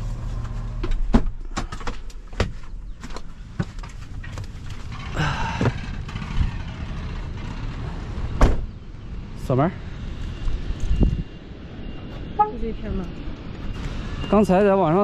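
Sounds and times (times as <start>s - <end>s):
wind rumbling on microphone: 4.2s - 13.7s
van door shutting: 4.9s - 8.8s.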